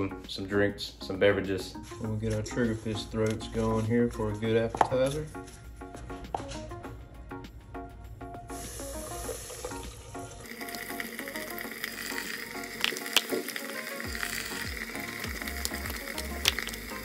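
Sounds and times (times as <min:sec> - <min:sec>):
oil sizzling and bubbling: 0:08.5 - 0:17.0.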